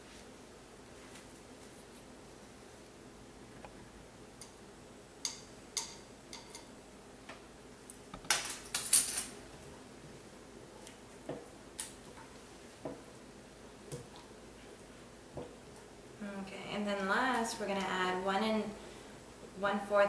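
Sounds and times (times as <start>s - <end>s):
utensils clinking against a skillet: 5.2s - 6.7s.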